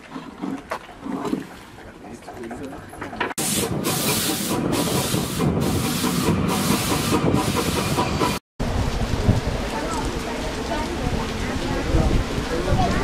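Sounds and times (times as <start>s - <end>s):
train rolling rumble: 0.0s - 13.0s
steam locomotive exhaust hissing: 3.4s - 8.4s.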